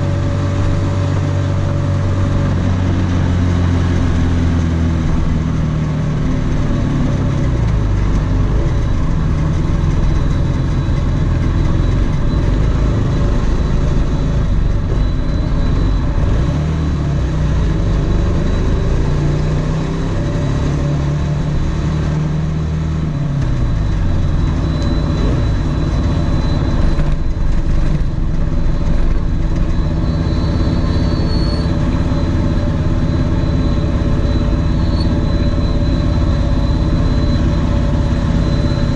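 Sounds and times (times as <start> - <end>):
drone motors and propellers buzzing: 6.3 - 22.2, 23.0 - 38.9.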